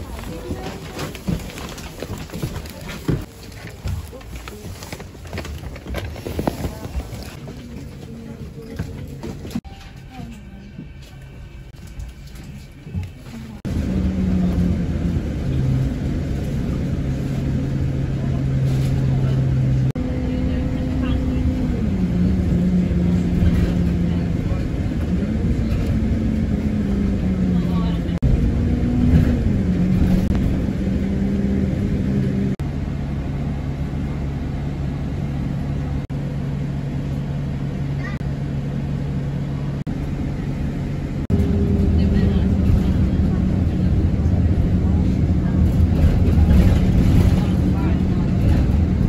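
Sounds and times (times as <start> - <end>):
bus engine and road rumble: 0.0 - 49.0.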